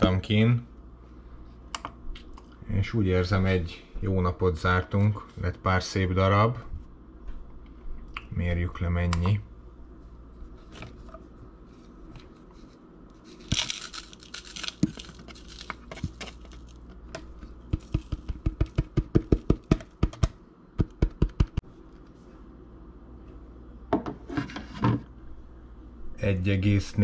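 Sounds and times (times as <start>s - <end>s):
container scraping rustle: 11.7s - 16.9s.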